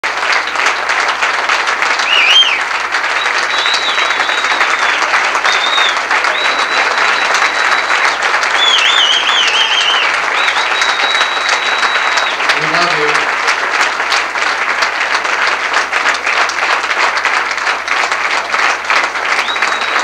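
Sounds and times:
audience applauding: 0:00.0 - 0:20.0
high whistles: 0:02.0 - 0:12.6, 0:19.3 - 0:20.0.

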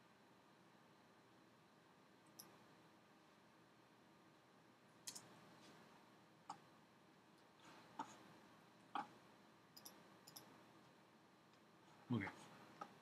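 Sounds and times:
faint computer mouse clicks: 0:02.3 - 0:02.6, 0:05.0 - 0:05.3, 0:09.8 - 0:10.5.

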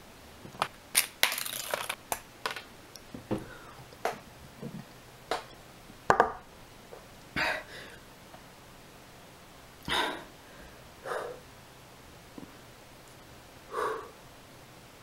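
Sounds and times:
breathy exhalations: 0:03.4 - 0:03.8, 0:13.7 - 0:14.2.

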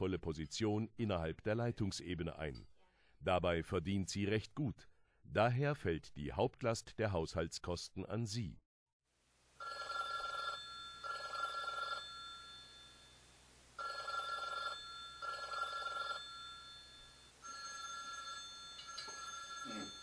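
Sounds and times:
telephone bell ringing: 0:09.6 - 0:20.0.

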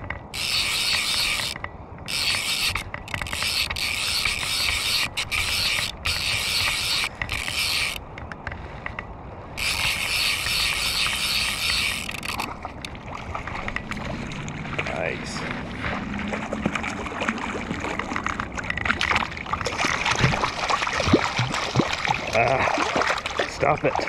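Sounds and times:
fishing reel ratcheting: 0:00.0 - 0:08.0, 0:09.6 - 0:12.9.

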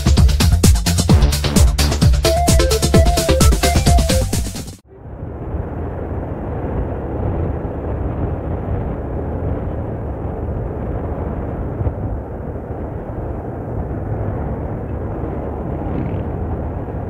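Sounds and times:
electronic music: 0:00.0 - 0:04.8
engine and road noise rumble: 0:04.8 - 0:17.0.

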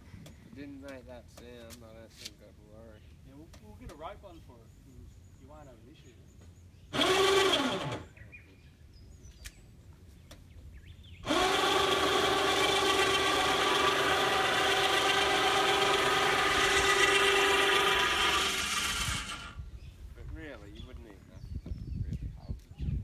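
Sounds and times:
electric motor humming: 0:06.9 - 0:08.1, 0:11.2 - 0:19.6.

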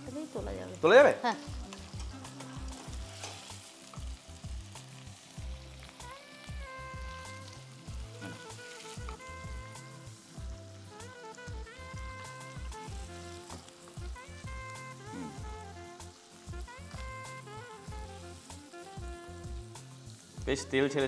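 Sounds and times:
faint background music: 0:00.0 - 0:21.0
food sizzling faintly in pan: 0:00.0 - 0:21.0
metal spatula scraping a wok: 0:01.7 - 0:03.7.

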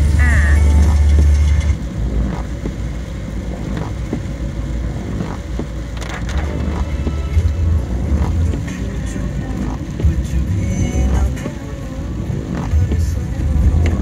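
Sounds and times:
car engine and tyres rumbling: 0:00.0 - 0:14.0
rain tapping on windscreen: 0:00.4 - 0:14.0.

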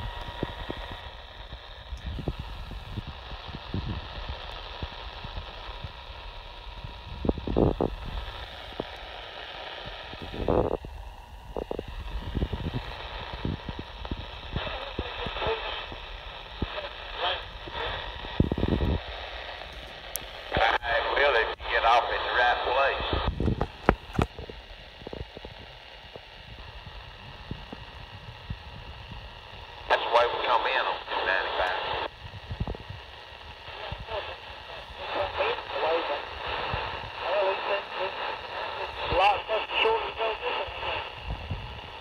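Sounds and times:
faint broken radio voices: 0:00.0 - 0:42.0
radio receiver static: 0:00.0 - 0:42.0
bursts of radio noise: 0:11.6 - 0:19.2, 0:19.9 - 0:24.4, 0:29.9 - 0:32.1, 0:33.6 - 0:42.0.

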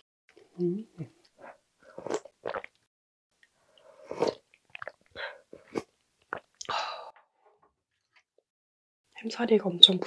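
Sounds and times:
slurping broth: 0:03.7 - 0:06.7.

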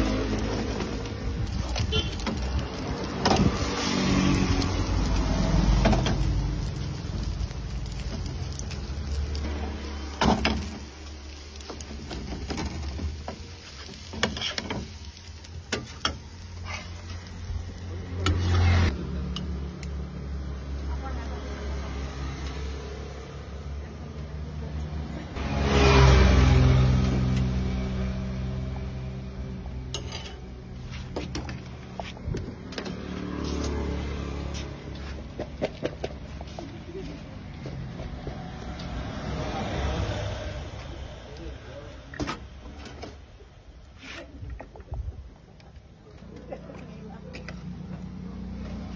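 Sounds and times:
traffic running past: 0:00.0 - 0:48.9
spatula scraping frying pan: 0:13.6 - 0:15.0.

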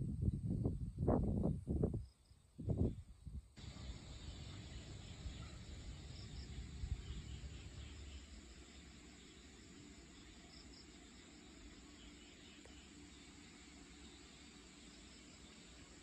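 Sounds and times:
insects chirping: 0:00.2 - 0:16.0
steady hiss: 0:03.6 - 0:16.0.

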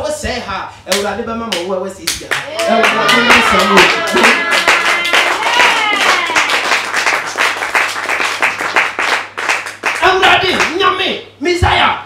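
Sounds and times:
congregation clapping rhythmically: 0:00.9 - 0:11.0.

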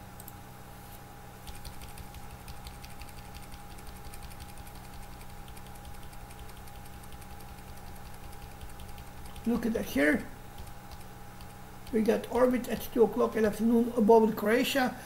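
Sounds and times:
faint steady whine: 0:00.0 - 0:15.0
low electrical hum: 0:00.0 - 0:15.0
computer keys clicking: 0:01.4 - 0:09.6, 0:10.5 - 0:12.0.

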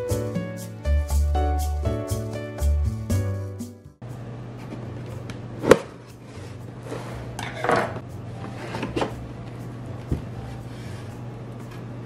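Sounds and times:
steady low hum: 0:04.0 - 0:12.0.

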